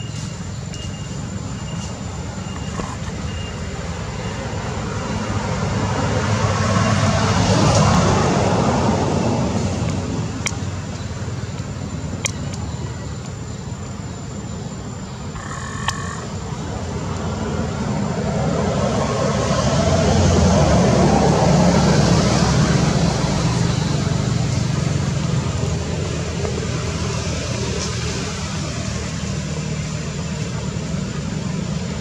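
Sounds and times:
motor vehicle passing by: 4.6s - 10.8s, 16.5s - 32.0s
background hum: 9.5s - 18.0s.

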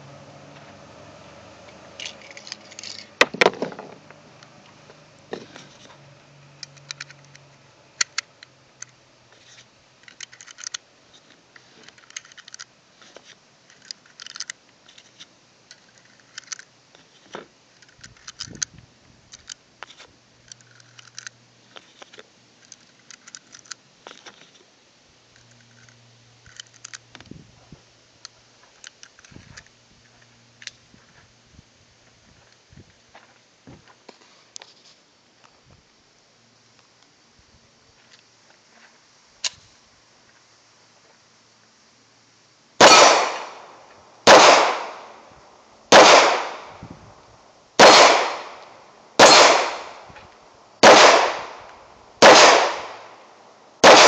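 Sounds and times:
cartridges clicking into magazine: 6.6s - 9.0s, 10.0s - 10.8s, 11.8s - 12.7s, 13.7s - 16.7s, 17.7s - 18.7s, 19.3s - 19.6s, 20.4s - 24.3s, 25.4s - 27.2s, 28.2s - 29.7s, 42.8s - 45.2s, 45.9s - 46.8s, 47.8s - 50.1s, 50.8s - 53.2s.

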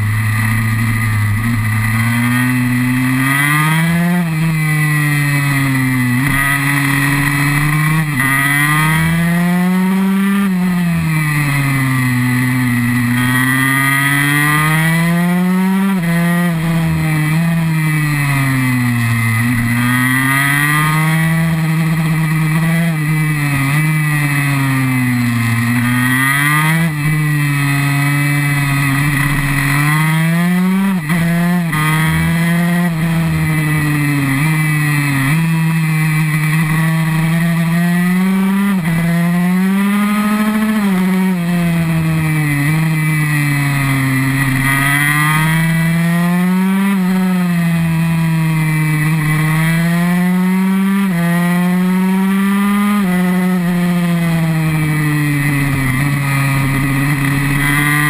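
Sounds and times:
two-stroke motorcycle engine revving: 0.0s - 58.0s.

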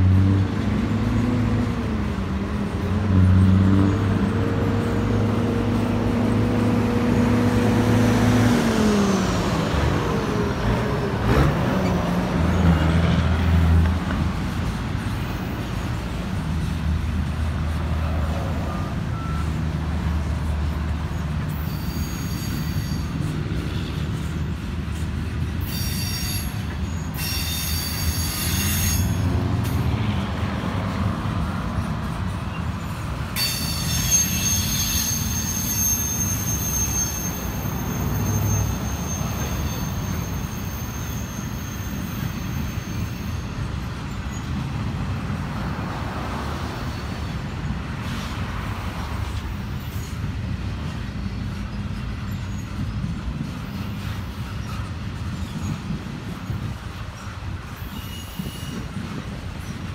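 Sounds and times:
freight train wheels rumbling: 0.0s - 59.9s
metallic wheel squeal: 18.6s - 29.6s, 31.8s - 44.8s, 49.2s - 59.9s.

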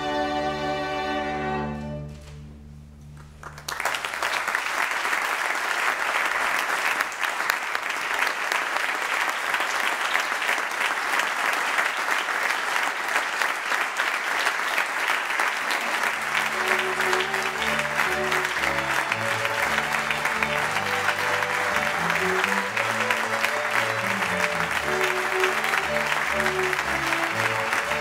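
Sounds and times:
audience applause: 3.2s - 28.0s
orchestra holding chord: 16.1s - 28.0s.

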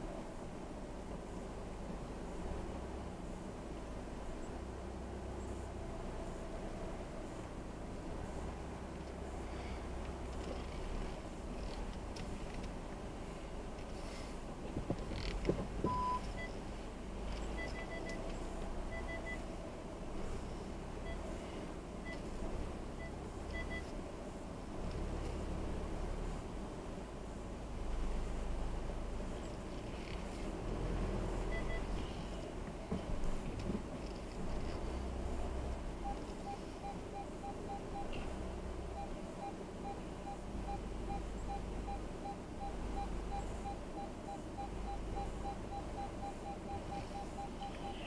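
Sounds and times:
car engine low rumble: 0.0s - 48.0s
parking sensor beeps: 15.8s - 16.6s, 17.4s - 19.5s, 21.0s - 21.3s, 22.0s - 22.3s, 22.9s - 23.9s, 31.4s - 32.5s, 36.0s - 48.0s.

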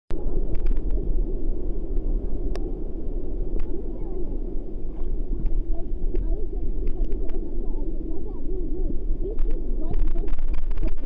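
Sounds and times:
ocean surf: 0.1s - 11.0s
wind buffeting microphone: 0.1s - 11.0s
faint clicks: 0.5s - 1.0s, 1.9s - 2.6s, 3.5s - 3.8s, 5.0s - 7.4s, 9.3s - 11.0s.

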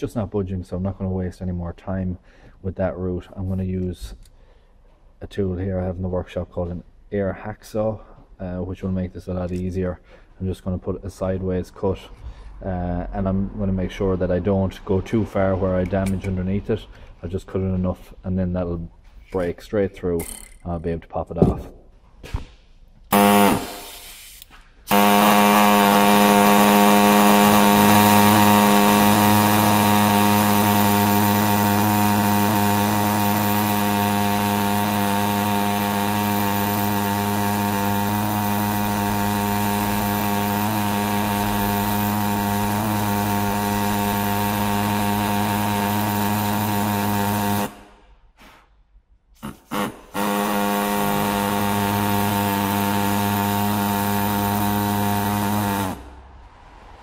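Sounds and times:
air hacksaw cutting steel: 23.1s - 47.8s, 49.4s - 56.0s.

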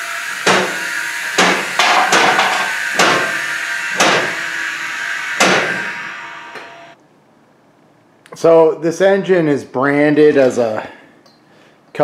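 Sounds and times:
hissing lift table: 0.0s - 7.0s.

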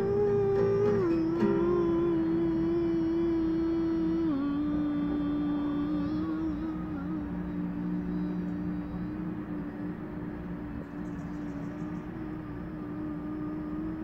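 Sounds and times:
acoustic guitar playing softly: 0.0s - 10.9s
person humming steady note: 0.0s - 14.0s.

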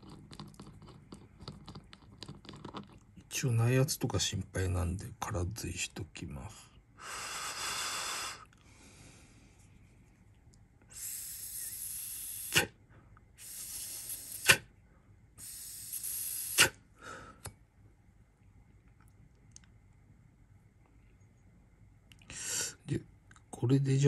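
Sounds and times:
airy hisses of puffs through tank: 10.9s - 12.7s, 13.4s - 14.7s, 15.4s - 16.8s.

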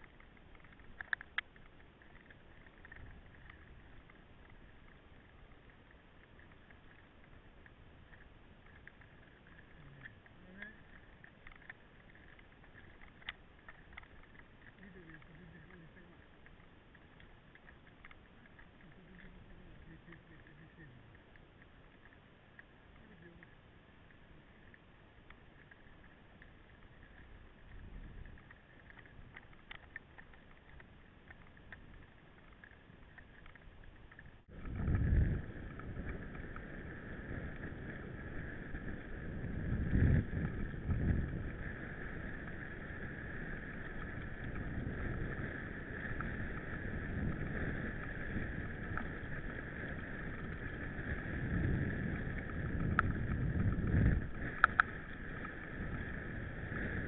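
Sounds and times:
wind buffeting microphone: 34.5s - 57.0s.

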